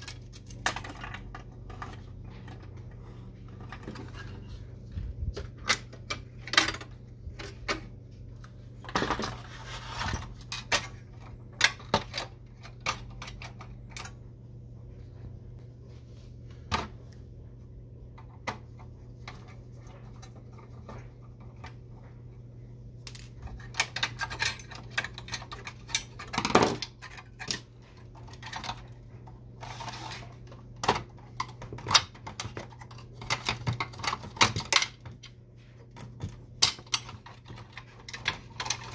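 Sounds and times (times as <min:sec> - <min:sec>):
plastic parts clicking and rattling: 0:00.0 - 0:04.6, 0:05.2 - 0:14.2, 0:23.0 - 0:38.9
steady low hum: 0:00.0 - 0:38.9.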